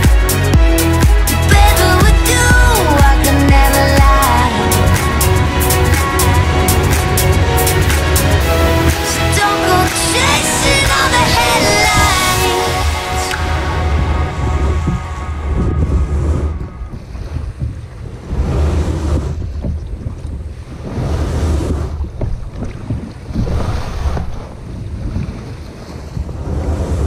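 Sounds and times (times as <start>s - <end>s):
water slapping against hull: 0.0s - 27.0s
wind buffeting microphone: 1.5s - 27.0s.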